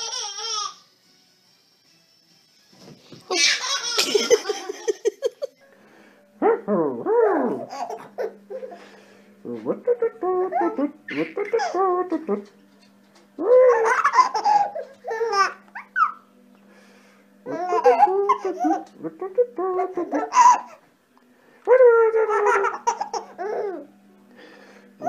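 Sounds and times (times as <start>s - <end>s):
baby laughing and babbling: 0.0s - 0.8s, 3.3s - 4.9s, 7.4s - 8.8s, 9.9s - 12.2s, 13.4s - 16.2s, 17.5s - 20.8s, 21.8s - 23.9s.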